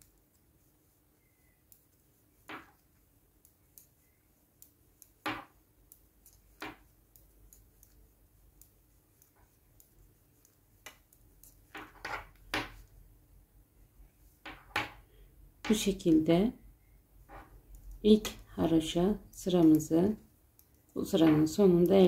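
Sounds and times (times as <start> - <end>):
metal knitting needles clicking: 1.6 - 4.0, 4.6 - 12.9, 17.6 - 22.0
needle knocking on wooden table: 5.2 - 5.5.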